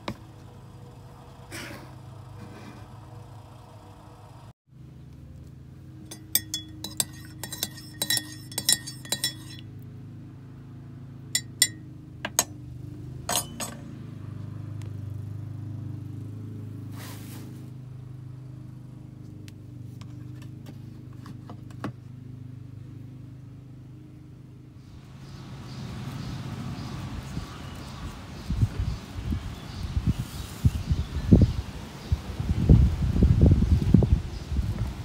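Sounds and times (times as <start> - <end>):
spoon clinking in ceramic mug: 6.1 - 9.6, 11.4 - 12.5, 13.3 - 13.9
spoon set down clinking: 6.1 - 9.6, 11.4 - 12.5, 13.3 - 13.9
low steady hum: 11.3 - 15.5.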